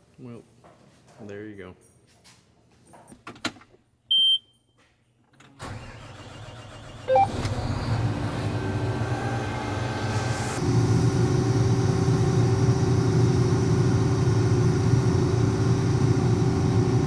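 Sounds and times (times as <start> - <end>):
short warning beep: 4.1 - 4.6, 7.1 - 7.3.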